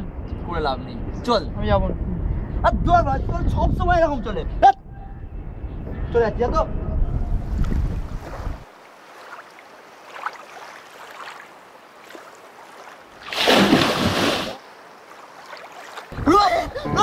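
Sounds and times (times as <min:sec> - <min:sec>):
river ambience hiss: 0:08.6 - 0:16.1
boy shouting: 0:16.2 - 0:17.0.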